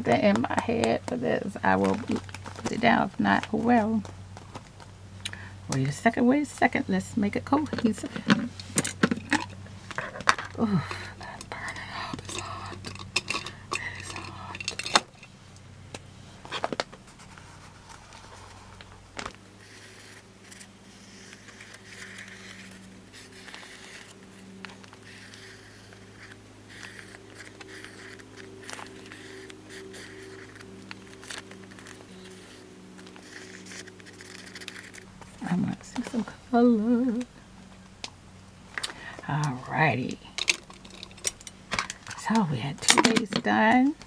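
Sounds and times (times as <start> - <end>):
low steady held tones: 0.0 - 44.0
marker scratching on paper: 19.6 - 24.4, 25.0 - 35.1
craft supplies clicking and rattling: 40.4 - 42.2, 42.8 - 43.5.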